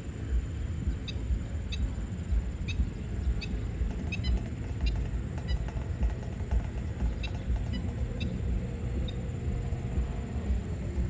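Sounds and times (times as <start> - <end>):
uneven low rumble: 0.0 - 11.0
birds giving sharp high calls: 2.6 - 9.3.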